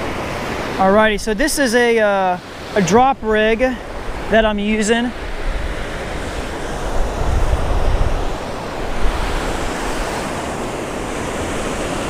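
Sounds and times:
muffled ocean surf breaking: 0:00.0 - 0:12.0
wind rumbling on microphone: 0:03.1 - 0:12.0.

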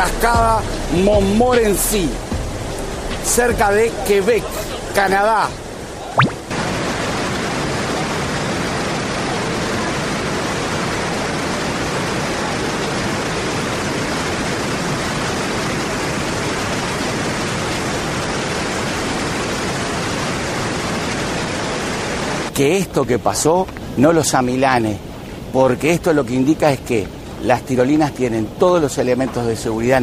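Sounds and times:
waterfall rushing: 0:00.0 - 0:22.5.

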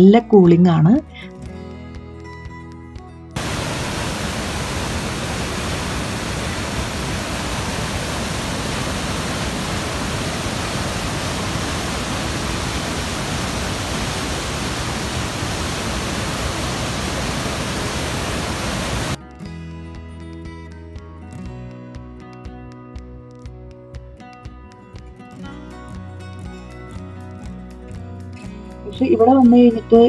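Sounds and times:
waterfall and rapids rushing: 0:03.4 - 0:19.2.

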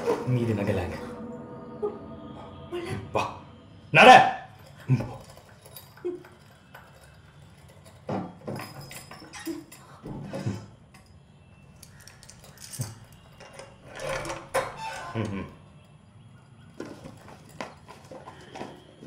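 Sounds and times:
items clinking: 0:04.6 - 0:15.2, 0:16.7 - 0:19.0.

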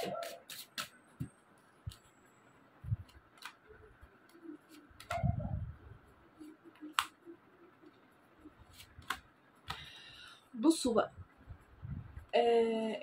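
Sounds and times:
cards clicking and tapping: 0:00.0 - 0:02.1, 0:03.0 - 0:05.2, 0:06.4 - 0:07.2, 0:08.7 - 0:09.9.

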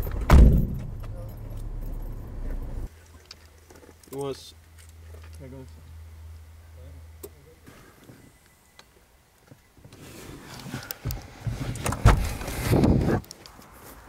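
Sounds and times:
loud thump: 0:00.0 - 0:01.2.

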